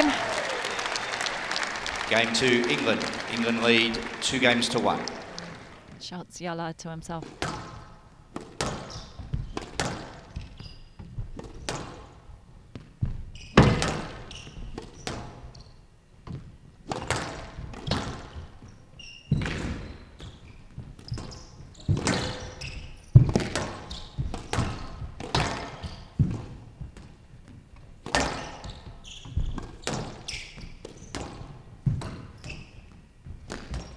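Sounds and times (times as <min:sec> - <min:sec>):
squash ball hitting rackets and walls: 0:07.2 - 0:33.9
shoes squeaking on court: 0:07.3 - 0:33.9.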